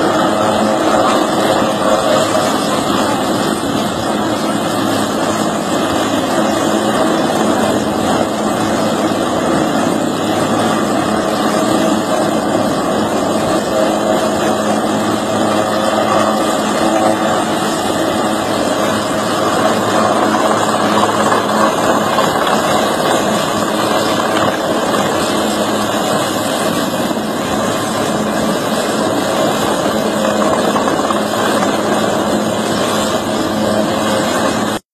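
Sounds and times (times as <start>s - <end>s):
helicopter engine and rotor: 0.0s - 34.9s.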